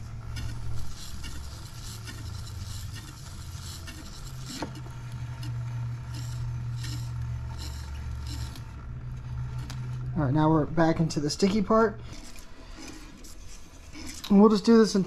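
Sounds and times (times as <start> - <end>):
tape peeling off reel: 0.0 - 10.0
small motor humming: 0.0 - 15.0.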